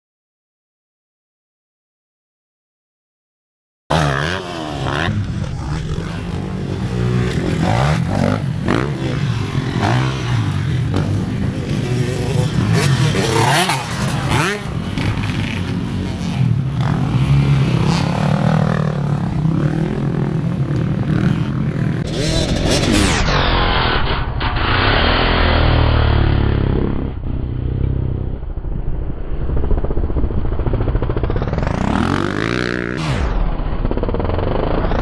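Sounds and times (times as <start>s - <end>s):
dirt bike passing close by: 3.9s - 23.2s, 29.3s - 35.0s
dirt bikes revving: 3.9s - 23.6s, 31.3s - 33.3s.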